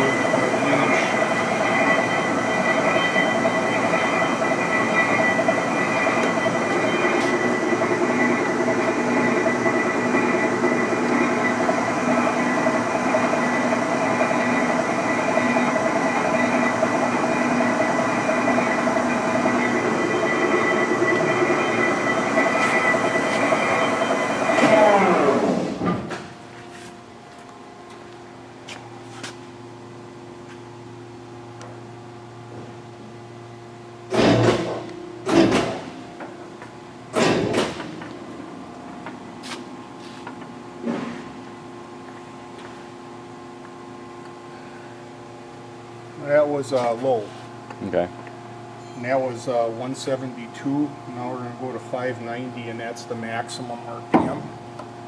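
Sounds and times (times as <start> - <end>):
lathe running: 0.0 - 25.9
whining tones: 0.0 - 26.5
lathe running hum: 0.0 - 55.0.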